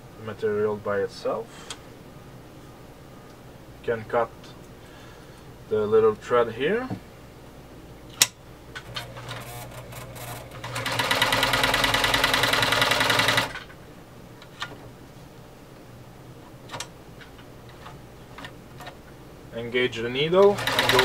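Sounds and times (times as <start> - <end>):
sewing machine stitching: 8.8 - 13.7, 20.4 - 21.0.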